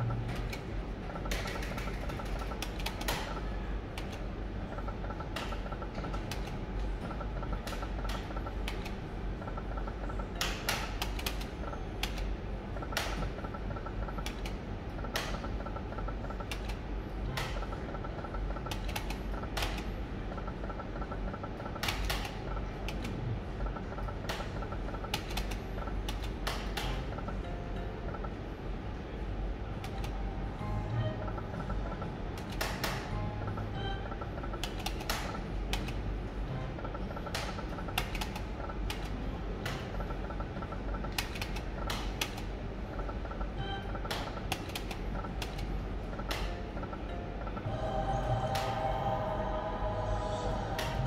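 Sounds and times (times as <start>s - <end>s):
slot machine clicks: 0.0s - 51.0s
steady low hum: 0.0s - 51.0s
short electronic beeps: 33.6s - 34.2s.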